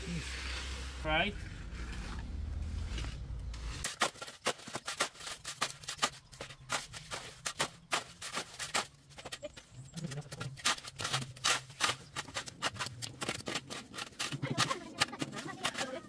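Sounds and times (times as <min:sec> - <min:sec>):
shovel scraping mortar mix: 0:00.0 - 0:16.0.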